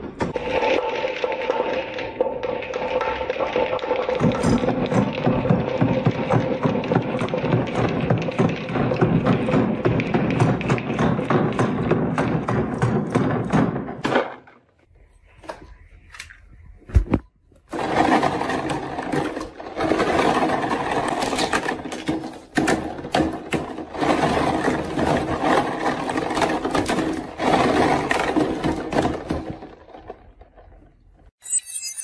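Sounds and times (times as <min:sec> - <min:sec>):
marbles rattling down wooden track: 0:00.4 - 0:12.0, 0:17.8 - 0:30.5.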